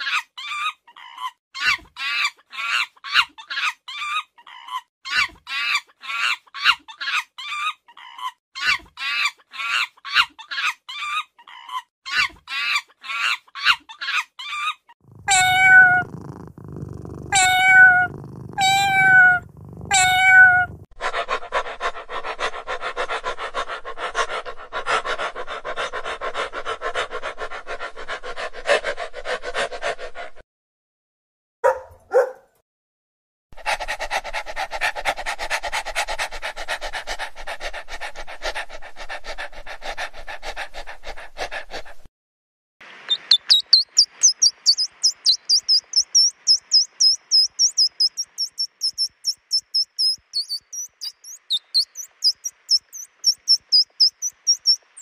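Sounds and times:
young monkey chirping: 15.1 - 20.8, 43.1 - 55.0
dog whining and panting: 15.1 - 20.9, 43.1 - 55.0
kitten meowing: 15.1 - 20.9.

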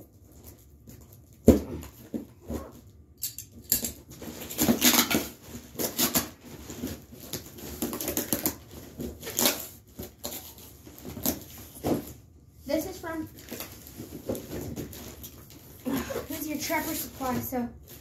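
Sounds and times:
cardboard box and paper rustling: 13.0 - 18.0.

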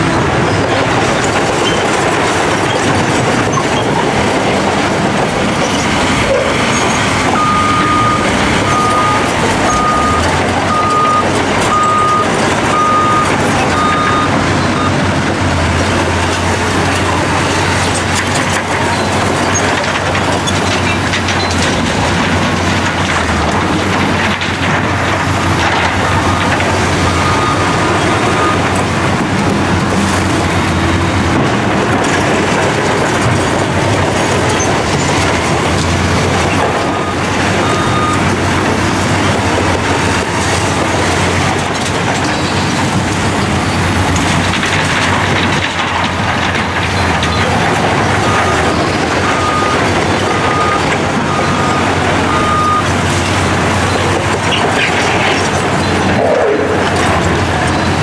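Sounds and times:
diesel engine under load: 0.0 - 58.0
steel tracks clattering: 0.0 - 58.0
reversing alarm beeps: 6.6 - 15.0, 26.0 - 28.8, 36.8 - 38.4, 48.2 - 54.0.

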